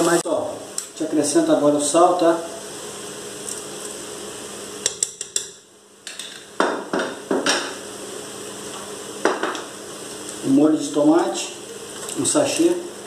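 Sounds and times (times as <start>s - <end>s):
spoon clicking against metal pot: 4.8s - 6.3s.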